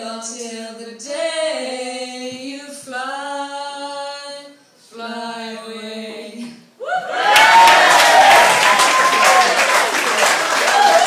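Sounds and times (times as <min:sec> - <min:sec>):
women singing: 0:00.0 - 0:06.7
audience cheering and applauding: 0:07.1 - 0:11.0.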